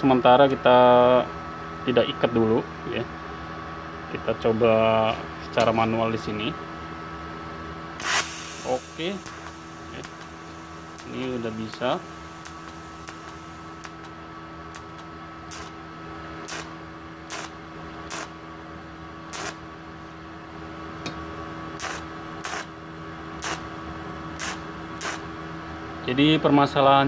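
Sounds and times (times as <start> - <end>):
welder machine hum: 1.0 - 26.4
high whine: 7.9 - 18.4
welding arc crackling snaps: 8.0 - 15.8, 16.4 - 18.4, 19.3 - 19.6, 21.7 - 22.7, 23.4 - 23.7, 24.4 - 25.3.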